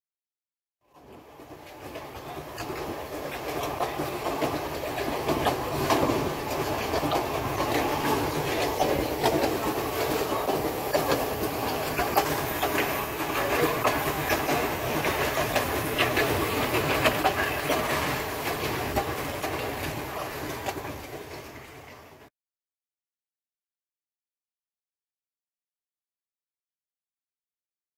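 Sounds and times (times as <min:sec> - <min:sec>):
steam train running rattle: 0:00.9 - 0:22.3
wheels clicking over rail joints: 0:00.9 - 0:22.3.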